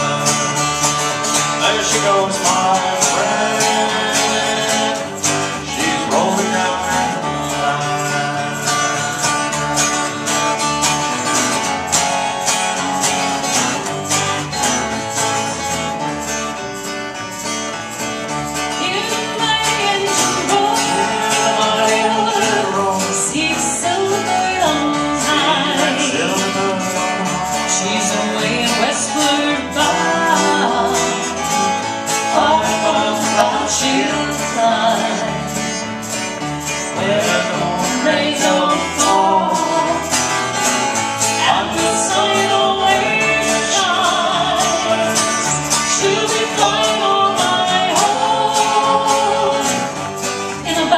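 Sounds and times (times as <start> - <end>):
person singing: 0.0 - 9.6, 18.8 - 35.8, 36.7 - 40.6, 41.2 - 50.9
acoustic guitar: 0.0 - 50.9
electric bass guitar: 0.0 - 50.9.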